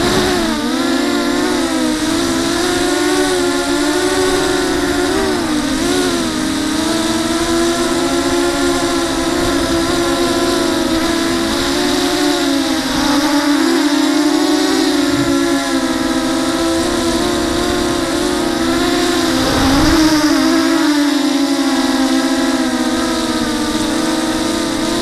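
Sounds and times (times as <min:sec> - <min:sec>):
drone motors whining: 0:00.0 - 0:25.0
wind hiss: 0:14.7 - 0:21.2.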